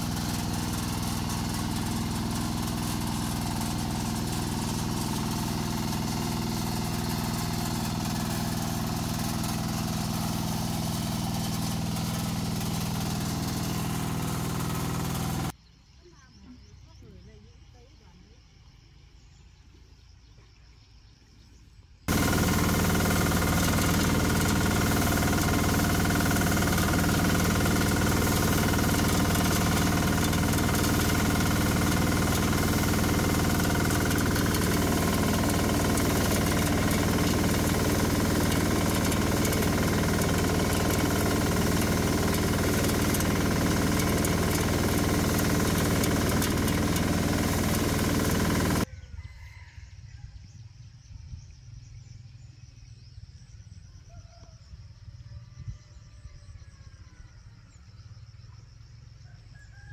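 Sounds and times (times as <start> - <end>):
combine harvester engine drone: 0.0 - 15.5, 22.1 - 48.9.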